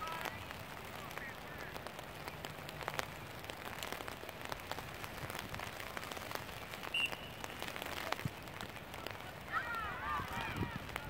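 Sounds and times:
rain falling: 0.0 - 11.0
referee's whistle blast: 6.9 - 7.6.

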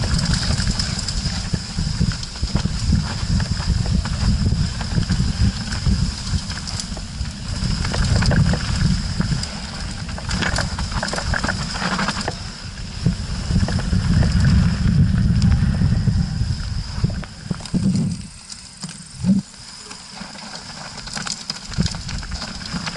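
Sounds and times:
tyres rattling on loose stones: 0.0 - 12.4, 19.8 - 22.9
wind on microphone: 0.0 - 18.4
trail vibration rumble: 0.0 - 22.9.

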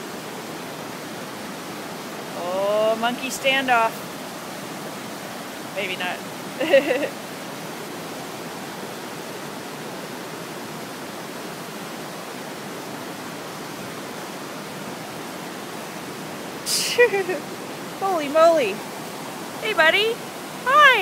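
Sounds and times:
fast-flowing river rushing: 0.0 - 21.0.

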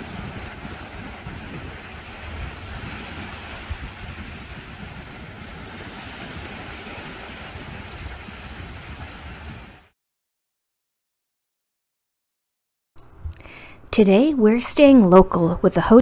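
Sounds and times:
small waves washing up beach: 0.0 - 9.9
wind rumbling on microphone: 0.0 - 9.9.

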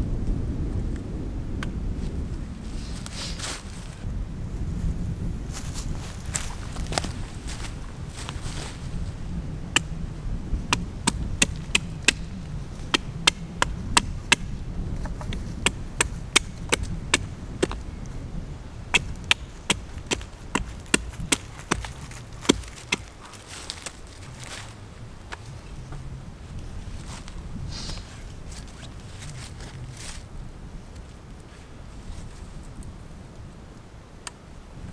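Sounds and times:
low wind rumble: 0.0 - 34.9
axe chopping wood: 10.7 - 12.3, 12.9 - 17.8, 19.0 - 23.9.

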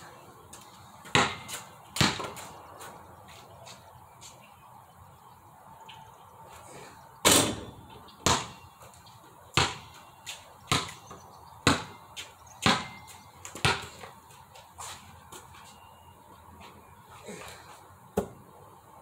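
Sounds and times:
ball bouncing: 1.0 - 2.5, 8.2 - 8.7, 9.6 - 10.0, 10.7 - 14.1, 18.2 - 18.4.

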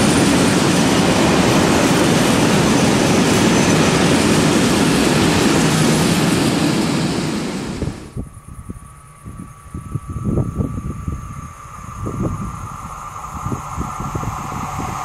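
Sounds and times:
freight train wheels rumbling on rail: 0.0 - 8.4.

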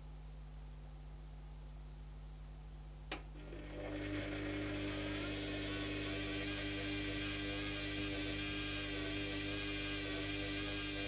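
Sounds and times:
washing machine motor humming: 3.2 - 11.0.

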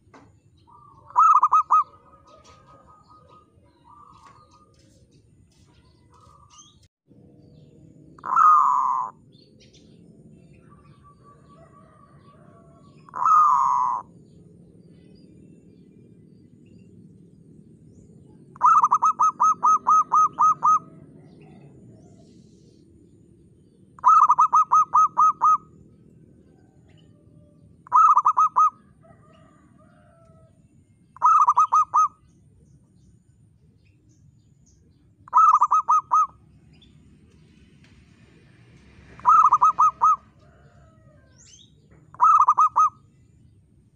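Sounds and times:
dove cooing: 0.0 - 6.7, 8.2 - 9.4, 10.5 - 14.4, 18.2 - 22.4, 24.0 - 30.5, 31.2 - 32.2, 35.3 - 36.4, 39.1 - 43.1.

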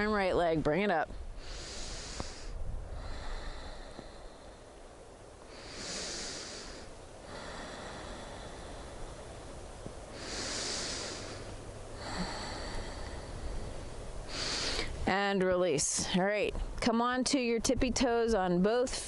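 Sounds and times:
woman breathing deeply through nose: 1.3 - 15.0.

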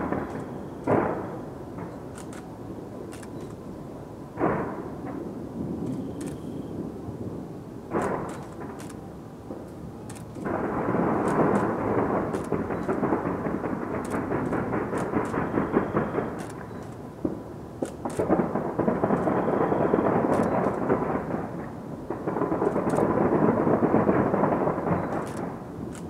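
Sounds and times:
distant fireworks bangs and crackles: 0.0 - 26.0.

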